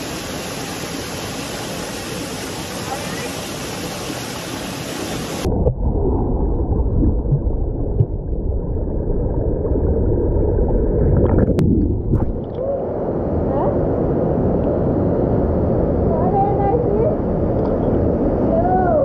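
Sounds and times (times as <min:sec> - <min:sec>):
waterfall rushing and splashing: 0:00.0 - 0:05.5
muffled underwater churning rumble: 0:00.1 - 0:19.0.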